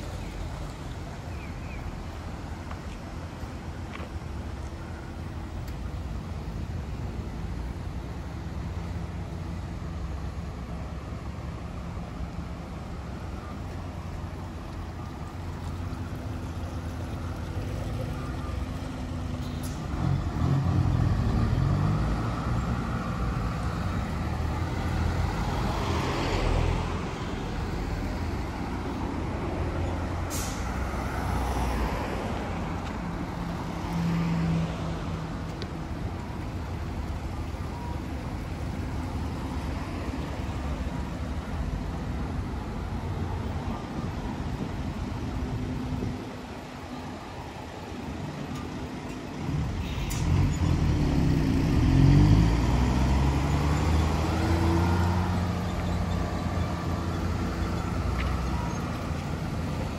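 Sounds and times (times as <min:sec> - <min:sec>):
heavy vehicles rumbling by: 0:00.0 - 0:59.9
road traffic passing: 0:00.0 - 0:59.9
brief sharp hiss: 0:30.3 - 0:30.8.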